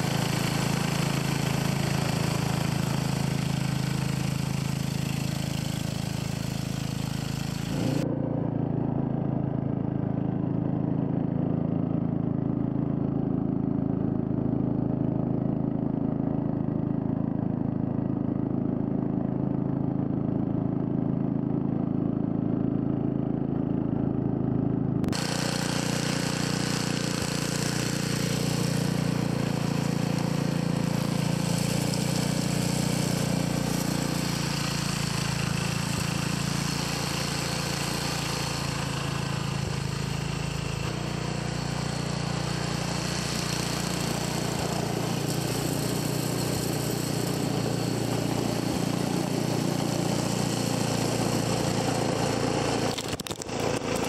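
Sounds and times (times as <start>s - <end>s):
snowblower engine running: 0.0s - 54.0s.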